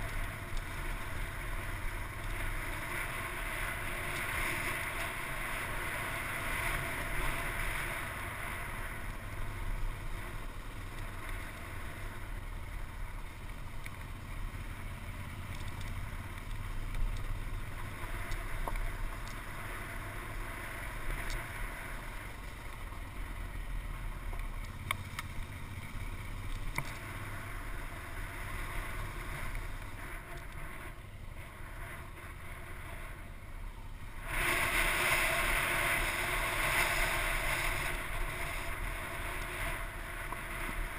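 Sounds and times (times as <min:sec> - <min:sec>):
off-road motorcycle engine: 0:00.0 - 0:40.9
wind noise on microphone: 0:28.2 - 0:40.9.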